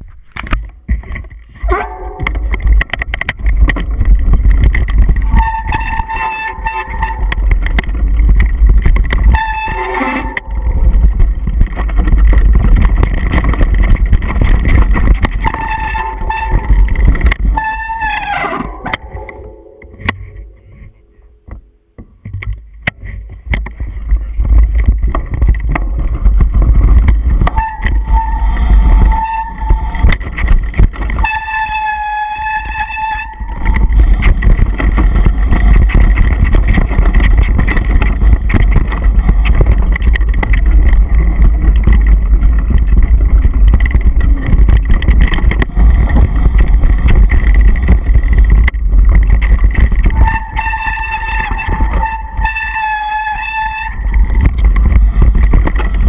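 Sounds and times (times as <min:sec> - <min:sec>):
bike rattling over ground: 0:00.0 - 0:21.2, 0:22.0 - 0:56.0
wind buffeting microphone: 0:01.6 - 0:21.0, 0:22.2 - 0:56.0
bike brakes squealing: 0:05.3 - 0:07.3, 0:09.4 - 0:10.5, 0:27.6 - 0:30.0.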